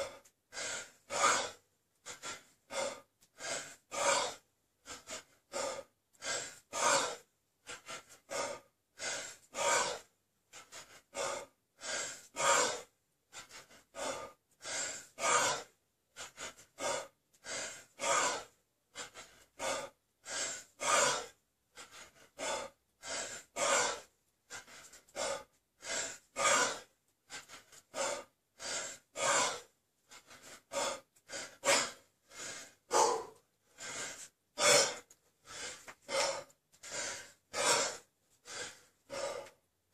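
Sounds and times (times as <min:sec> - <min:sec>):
man breathing heavily: 0:00.0 - 0:39.9.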